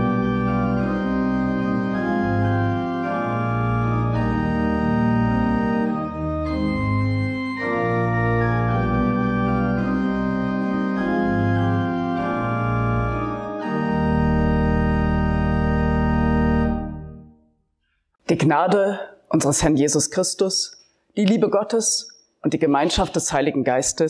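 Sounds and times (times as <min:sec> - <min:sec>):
organ chords: 0:00.0 - 0:17.6.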